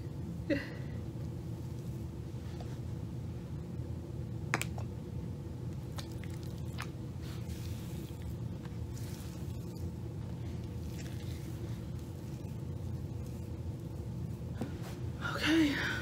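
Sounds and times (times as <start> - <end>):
hands squishing wet hair: 5.8 - 14.5.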